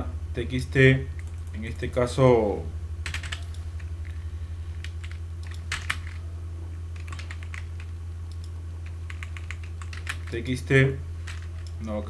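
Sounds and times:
low electrical hum: 0:00.0 - 0:12.0
keyboard typing: 0:03.0 - 0:04.2, 0:04.8 - 0:06.2, 0:06.9 - 0:10.4, 0:11.2 - 0:11.9.

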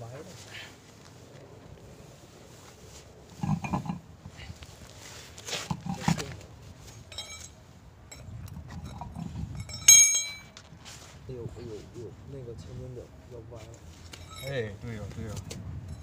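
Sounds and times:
light metallic clink: 0:07.1 - 0:10.6, 0:14.1 - 0:14.6.

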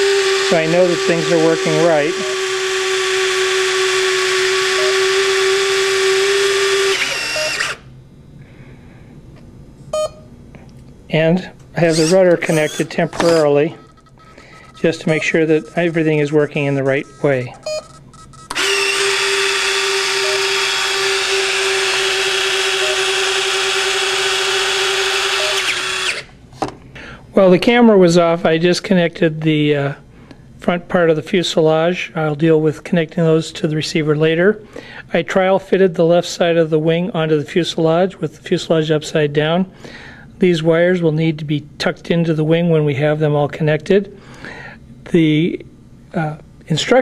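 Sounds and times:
landing gear motor whine: 0:00.0 - 0:08.0, 0:11.8 - 0:26.3.

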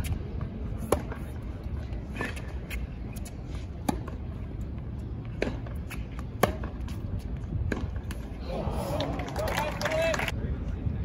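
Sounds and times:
tennis ball struck by rackets: 0:00.8 - 0:01.4, 0:03.8 - 0:04.3, 0:05.3 - 0:08.3.

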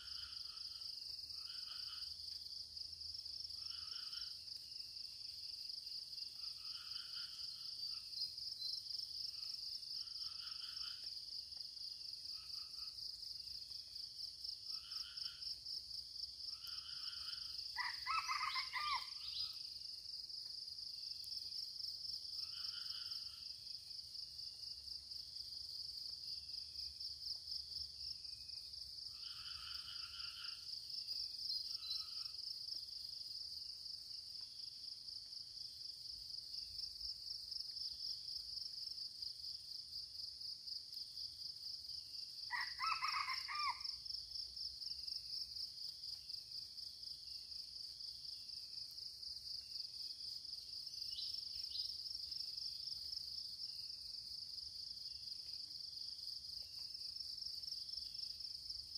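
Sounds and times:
high insect chorus: 0:00.0 - 0:58.9
rooster crowing: 0:17.8 - 0:19.2, 0:42.5 - 0:44.0.

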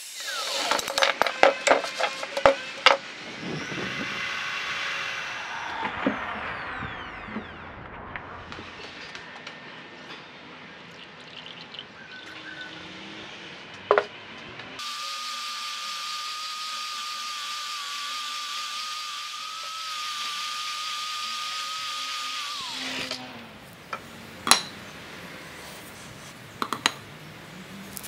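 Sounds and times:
angle grinder cutting steel: 0:00.0 - 0:09.2, 0:14.8 - 0:23.5.

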